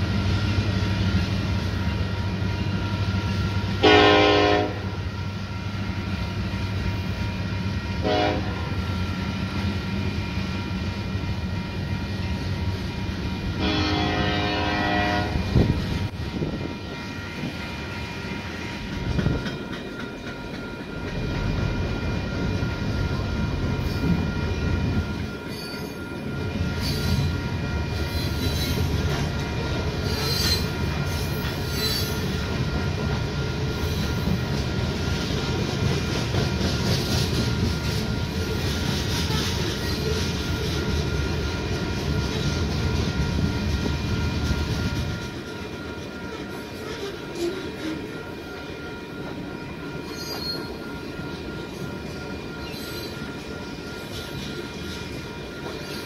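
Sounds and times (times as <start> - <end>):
train wheels rumbling and clattering: 0.0 - 56.0
crossing signal bells ringing: 1.1 - 56.0
train horn blast: 3.8 - 5.0, 8.0 - 8.8, 13.6 - 15.7
high wheel squeal: 26.7 - 27.3, 28.0 - 28.9, 30.0 - 32.3, 50.0 - 51.0, 52.6 - 53.3.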